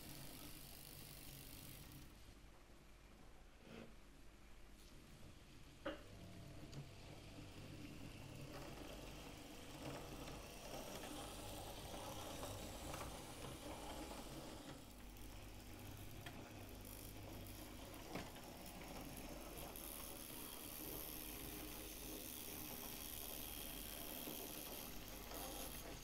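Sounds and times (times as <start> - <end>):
small electric motor whirring: 0.0 - 2.1, 7.6 - 18.1, 18.8 - 26.0.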